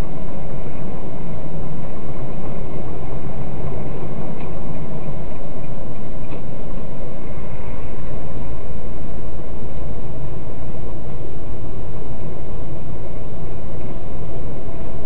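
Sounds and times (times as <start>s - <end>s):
vehicle engine and road noise: 0.0s - 15.0s.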